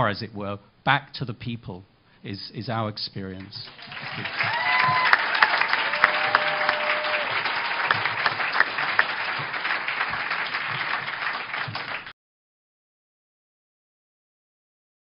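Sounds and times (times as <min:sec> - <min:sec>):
audience applause: 0:03.7 - 0:12.1.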